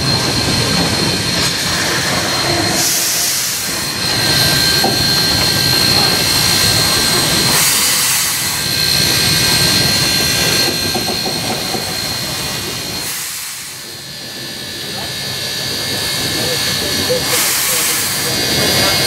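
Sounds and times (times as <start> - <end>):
wheels rumbling on track: 0.0 - 13.1
steam hissing: 0.0 - 19.0.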